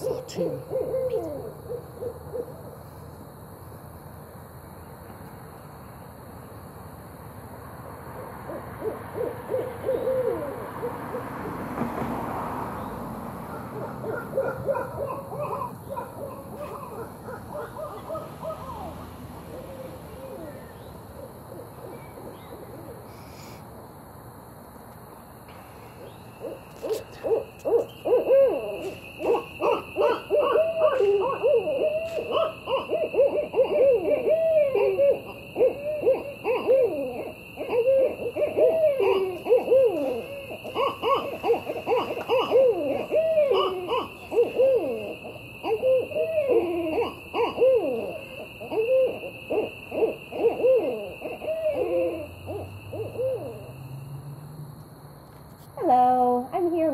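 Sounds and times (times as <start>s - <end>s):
owl hooting: 0.0s - 3.0s, 8.4s - 11.4s, 13.5s - 23.6s, 25.9s - 54.0s.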